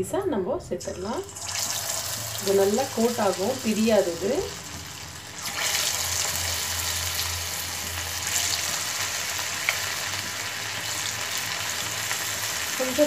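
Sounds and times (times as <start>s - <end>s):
chicken sizzling in hot oil: 1.3s - 13.0s.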